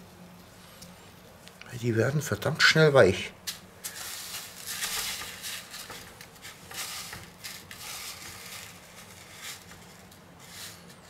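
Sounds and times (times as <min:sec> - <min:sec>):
sprinkles rustling in a metal tray: 0:03.5 - 0:11.0.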